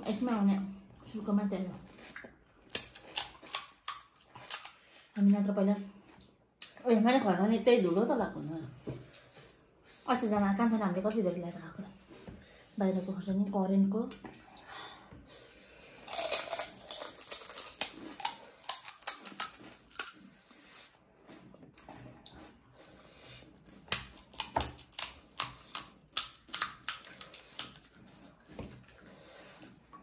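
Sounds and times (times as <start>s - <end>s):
crunching crisp shells: 16.0s - 20.4s.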